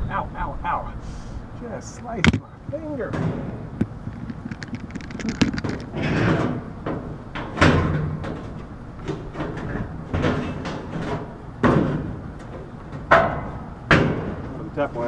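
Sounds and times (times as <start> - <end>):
metal panel scraping and rustling: 2.7 - 14.6
sharp metal knocks: 13.0 - 14.4.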